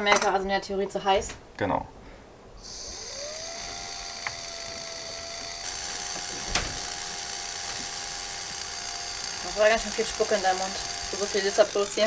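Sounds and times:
hiss of blowing: 0:02.0 - 0:04.5
turbine rotor whine: 0:02.6 - 0:12.0.

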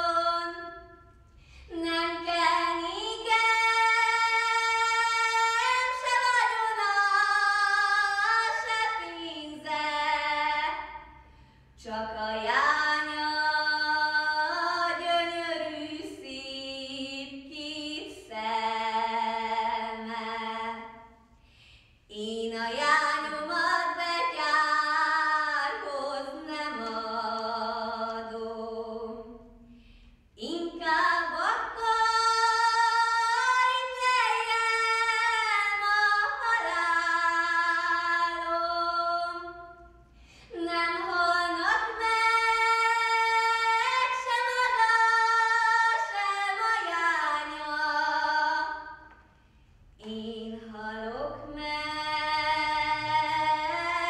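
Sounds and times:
girl singing unaccompanied: 0:01.7 - 0:11.0, 0:22.1 - 0:29.4, 0:30.4 - 0:39.8, 0:40.5 - 0:49.0.

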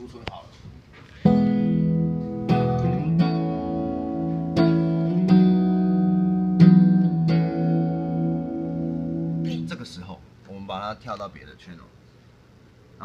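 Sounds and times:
electric guitar chords ringing: 0:01.2 - 0:10.0.

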